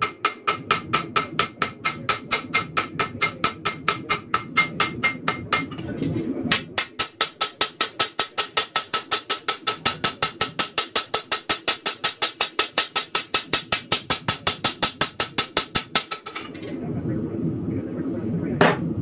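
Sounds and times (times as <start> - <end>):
hammer striking metal on anvil: 0.0 - 5.8, 6.5 - 16.6.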